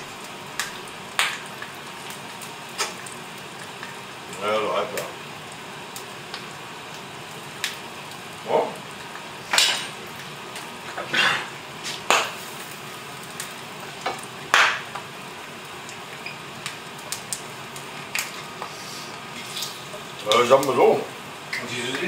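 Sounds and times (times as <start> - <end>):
food sizzling in a frying pan: 0.0 - 22.0
scrapes in a pan: 11.0 - 12.0.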